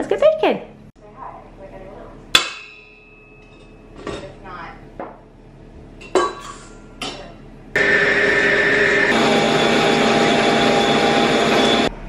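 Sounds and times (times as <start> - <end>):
stand mixer motor running: 7.8 - 12.0.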